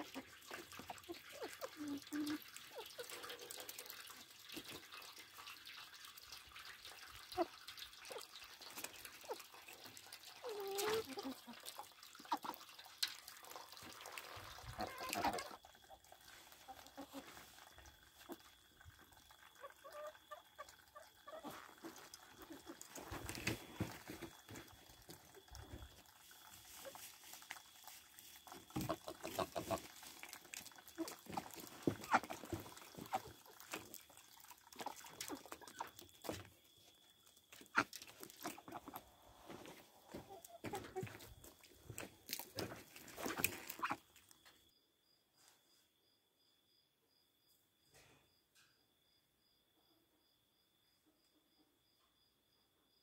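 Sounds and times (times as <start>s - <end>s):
birds splashing in water: 26.1s - 36.4s.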